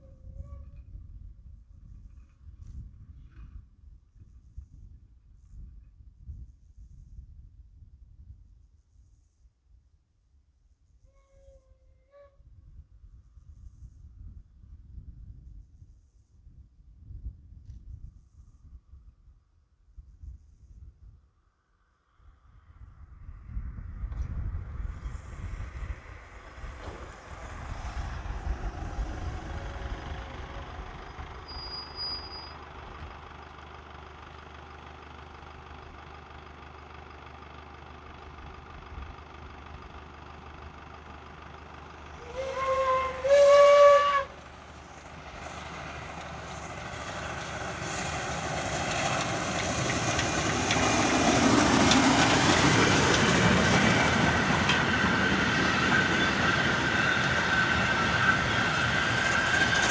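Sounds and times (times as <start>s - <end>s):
steam locomotive whistle: 11.1s - 12.4s, 42.2s - 44.4s
steam locomotive exhaust: 24.8s - 59.9s
train wheels rolling: 24.9s - 33.3s, 42.1s - 59.9s.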